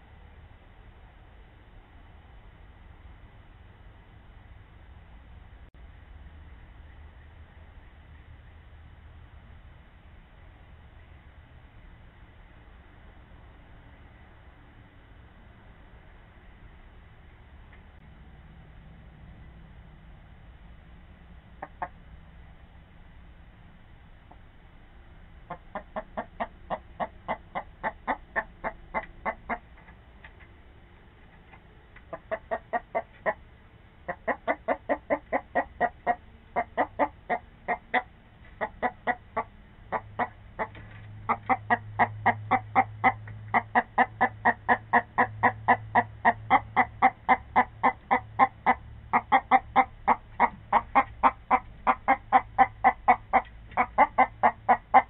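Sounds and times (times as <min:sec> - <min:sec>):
hen clucking rapidly: 0:21.6 - 0:22.0, 0:25.4 - 0:29.8, 0:32.0 - 0:33.4, 0:34.0 - 0:55.0.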